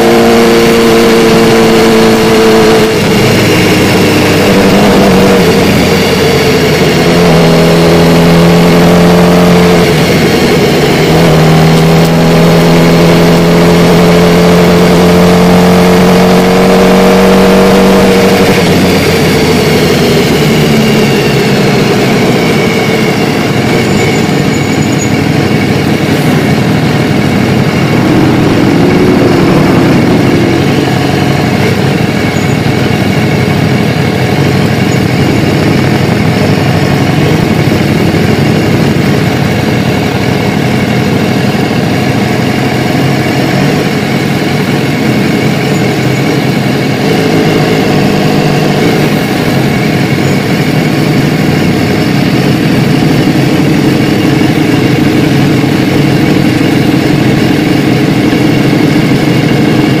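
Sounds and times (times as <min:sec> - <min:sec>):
motorcycle engine idling: 0:00.0 - 0:07.4, 0:09.3 - 0:12.4, 0:16.8 - 1:00.0.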